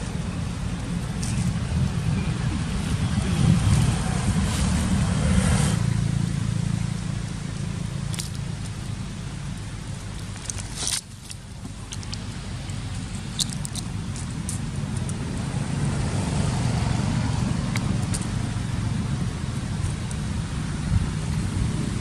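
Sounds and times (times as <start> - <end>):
low steady rumble: 0.0 - 22.0
monkey chewing fruit: 7.8 - 22.0.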